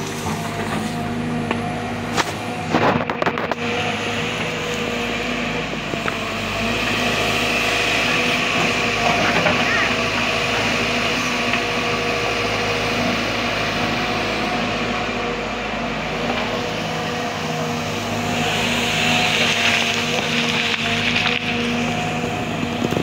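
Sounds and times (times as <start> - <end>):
excavator diesel engine: 0.0 - 23.0.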